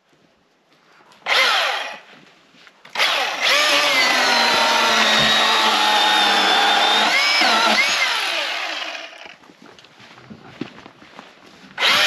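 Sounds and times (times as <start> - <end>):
chainsaw starting and running: 1.2 - 2.0, 2.9 - 9.4, 11.8 - 12.0.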